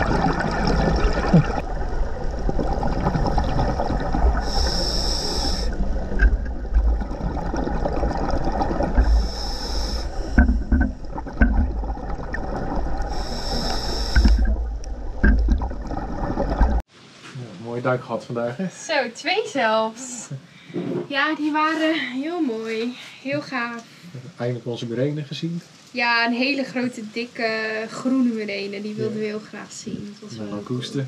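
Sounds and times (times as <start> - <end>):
bubbling exhalations: 0.0 - 16.8
regulator inhalation hiss: 4.4 - 5.8, 9.0 - 10.4, 13.1 - 14.6.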